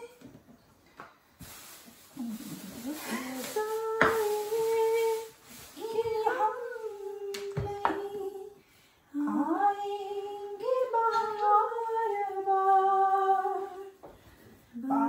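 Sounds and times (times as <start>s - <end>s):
woman singing unaccompanied: 0.0s - 0.2s, 2.8s - 14.0s, 14.7s - 15.0s.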